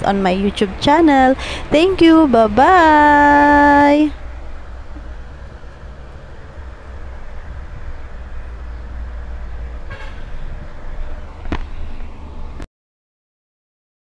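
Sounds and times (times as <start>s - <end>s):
road traffic rumble: 0.0s - 12.7s
car horn toot: 9.8s - 10.4s.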